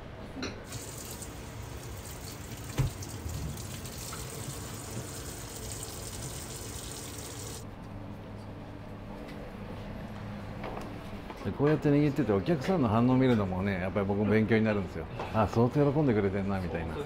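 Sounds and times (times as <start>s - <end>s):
tap water running into sink: 0.7s - 7.6s.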